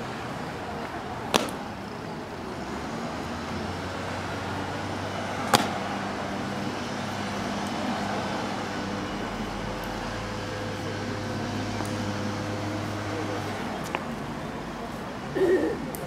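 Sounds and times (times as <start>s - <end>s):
distant road traffic hum: 0.0s - 16.0s
sharp boot clack on stone: 1.3s - 1.6s.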